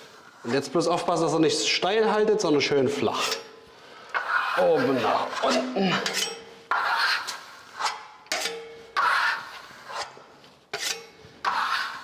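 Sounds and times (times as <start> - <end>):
trowel scraping plaster: 4.1 - 12.0.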